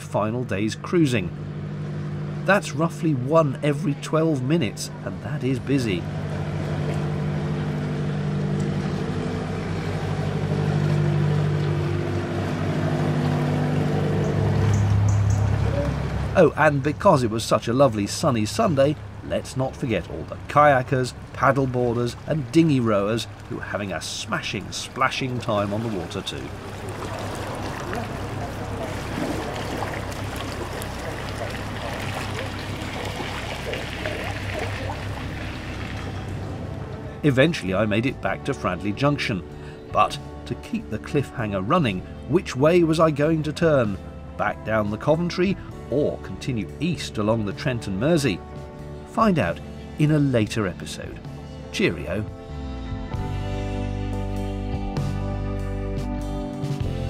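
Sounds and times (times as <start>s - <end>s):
water noise: 0.0s - 40.1s
boat diesel engine running: 0.0s - 53.7s.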